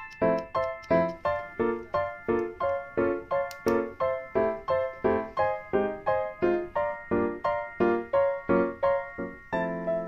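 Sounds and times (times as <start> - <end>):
keyboard playing repeated chords: 0.0 - 10.0.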